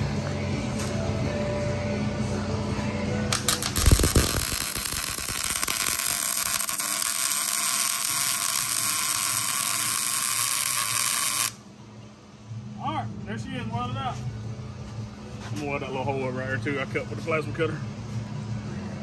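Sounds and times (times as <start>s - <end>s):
welder arc crackling and hissing: 3.3s - 11.6s.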